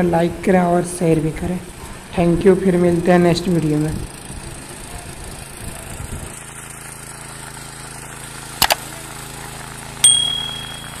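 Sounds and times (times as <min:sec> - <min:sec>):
small engine running: 0:00.0 - 0:11.0
quick clicks: 0:08.6 - 0:08.9
bell-like ding: 0:10.0 - 0:11.0.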